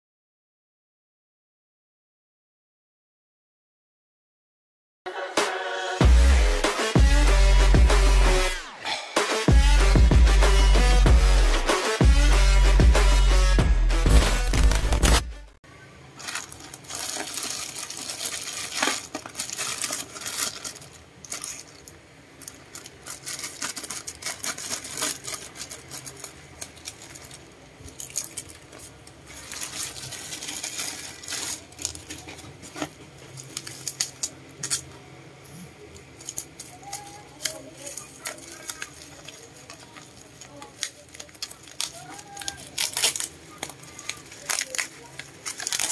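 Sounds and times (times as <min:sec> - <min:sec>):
bubble wrap crinkling: 0:16.1 - 0:35.0, 0:35.9 - 0:45.9
plastic bag rustling and crinkling: 0:16.1 - 0:35.0, 0:35.9 - 0:45.9
scissors cutting plastic: 0:16.2 - 0:35.0, 0:35.9 - 0:45.9.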